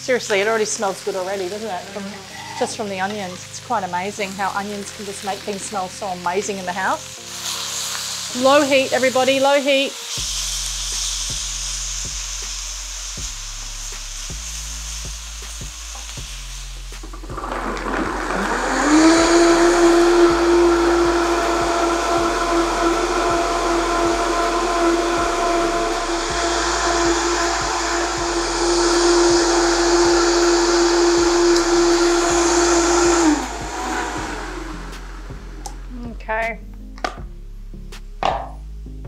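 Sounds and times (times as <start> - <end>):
pan sizzling faintly: 0.0 - 36.0
blender motor whine: 15.0 - 35.9.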